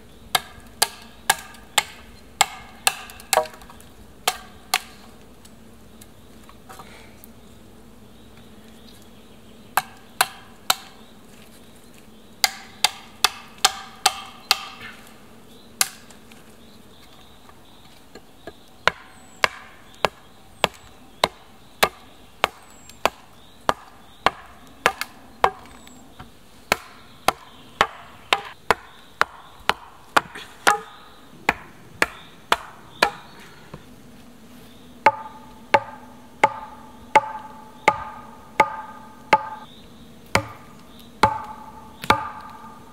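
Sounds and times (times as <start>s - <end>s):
log pounding on wooden pole: 0.3s - 3.7s, 12.4s - 14.8s, 18.1s - 25.8s, 26.7s - 30.9s, 31.5s - 33.2s, 35.1s - 39.6s, 40.4s - 42.7s
blade chopping wooden poles: 0.3s - 5.0s, 9.8s - 11.0s, 12.4s - 15.0s, 15.8s - 16.1s, 18.4s - 25.8s, 26.7s - 33.2s, 35.0s - 39.7s, 40.3s - 42.8s.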